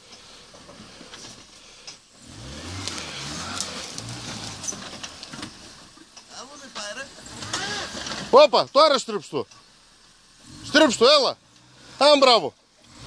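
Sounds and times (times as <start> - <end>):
engine revving under load: 0.2 - 6.0, 7.1 - 8.4, 10.2 - 13.0
sharp crackles: 1.0 - 8.4.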